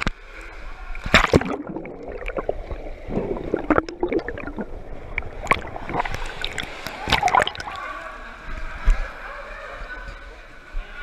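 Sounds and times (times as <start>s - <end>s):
water splashing: 1.0s - 8.4s
underwater gurgling and bubbling: 1.1s - 7.8s.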